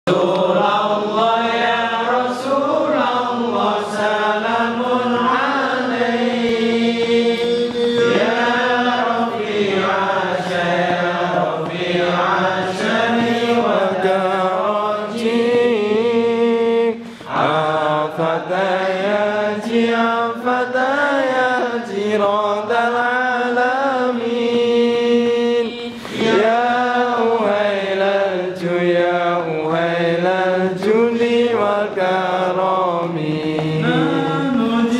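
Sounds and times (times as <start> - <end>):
men chanting together: 0.1 - 34.9
short breaths: 17.0 - 17.3, 25.9 - 26.2.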